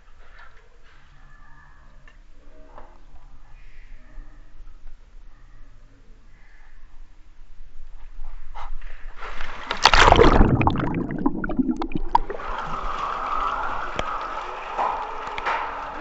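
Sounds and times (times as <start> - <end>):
water streaming and sloshing: 9.2 - 14.3
muffled rush of water: 9.2 - 15.3
loud splash: 9.6 - 13.1.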